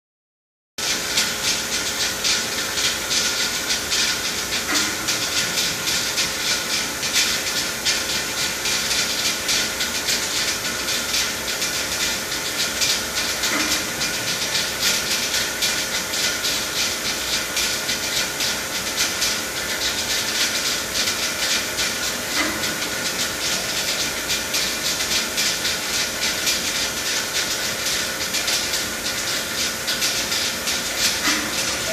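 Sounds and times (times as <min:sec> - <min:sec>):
constant machine hum: 0:00.8 - 0:31.9
machine cycling sound: 0:02.8 - 0:16.8, 0:20.1 - 0:26.6, 0:29.6 - 0:31.9.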